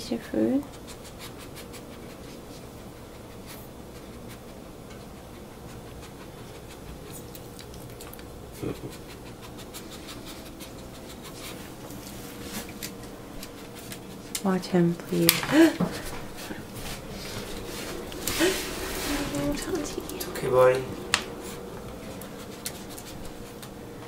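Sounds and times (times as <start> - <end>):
dog panting: 0.6 - 14.3, 15.5 - 23.8
dog licking a plate: 5.0 - 11.4.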